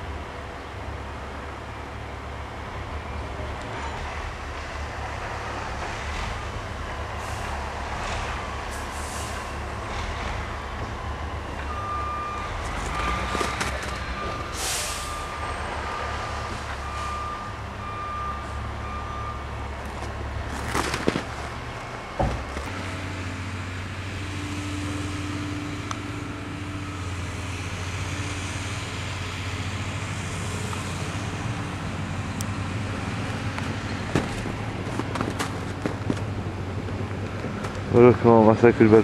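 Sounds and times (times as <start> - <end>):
heavy machinery engine rumble: 0.0 - 39.0
reversing alarm beeping: 8.4 - 20.0.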